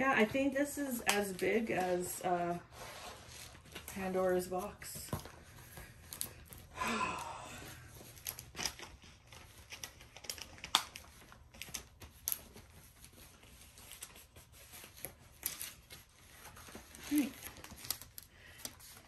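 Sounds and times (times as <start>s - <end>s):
packaging clicks and crinkles: 7.7s - 19.0s.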